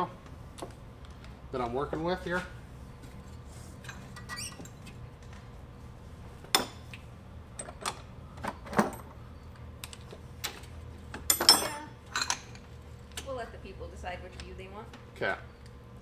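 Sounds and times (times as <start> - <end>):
metal tool parts clinking: 11.3 - 12.4.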